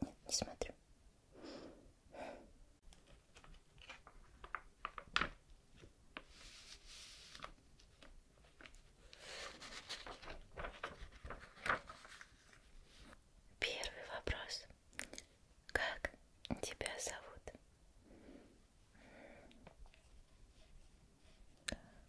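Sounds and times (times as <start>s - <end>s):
paper pages turning and sliding: 2.9s - 13.2s.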